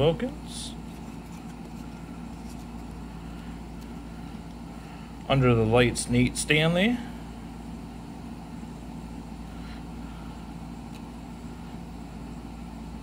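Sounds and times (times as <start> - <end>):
low room hum: 0.0 - 13.0
trading cards sliding in hand: 0.8 - 4.0.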